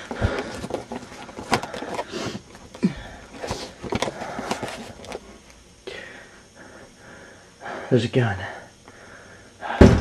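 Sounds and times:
camera handling rustle: 0.0 - 2.8, 3.4 - 5.3.

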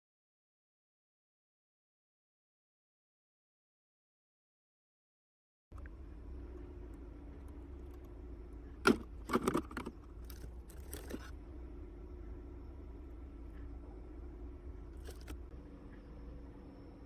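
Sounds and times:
low steady hum: 5.7 - 17.0.

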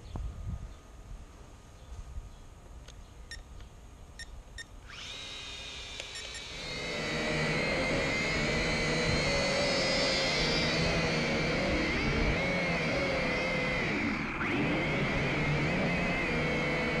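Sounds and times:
drone motors whining: 4.2 - 17.0.

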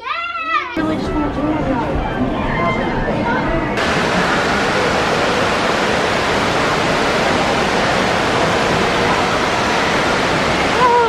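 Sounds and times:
water rushing and splashing: 3.8 - 11.0.

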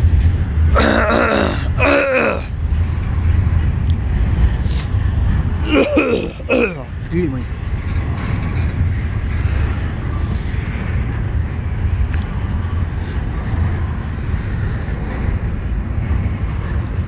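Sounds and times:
freight train wheels rumbling: 0.0 - 17.0.

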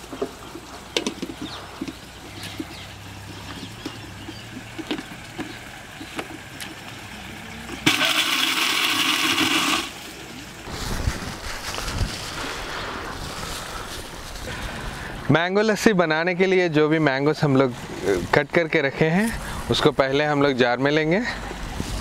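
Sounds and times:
blender motor running: 7.8 - 10.0.

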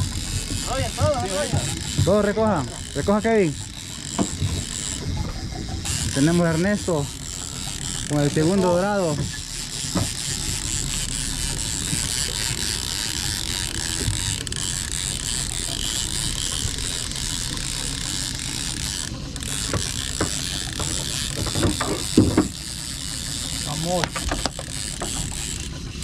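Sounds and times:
fishing reel winding: 0.0 - 26.0.

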